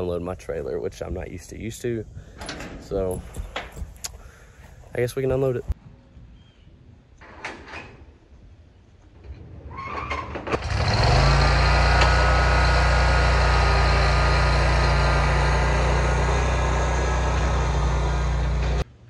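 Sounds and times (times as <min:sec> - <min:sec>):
mower engine starting and running: 0:09.9 - 0:18.9.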